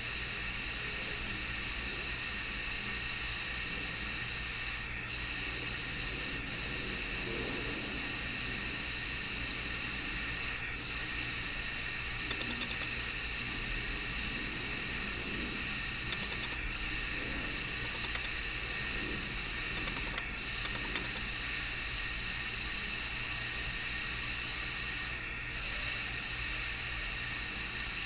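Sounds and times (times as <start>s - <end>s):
low hum: 5.3s - 25.8s.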